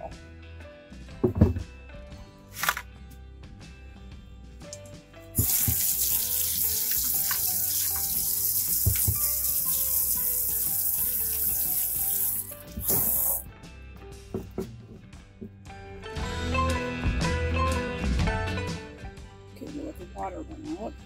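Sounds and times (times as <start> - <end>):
hose water spraying into sink: 4.7 - 13.4.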